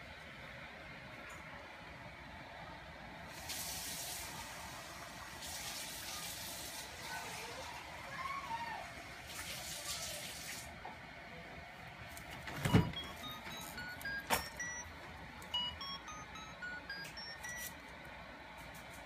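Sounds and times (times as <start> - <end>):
electronic toy tune beeping: 12.7 - 17.7.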